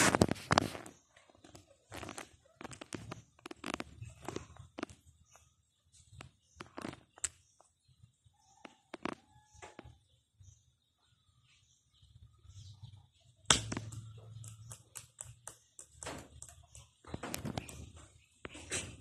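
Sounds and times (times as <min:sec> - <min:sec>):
puppy claws clicking on tile: 0:13.7 - 0:18.0.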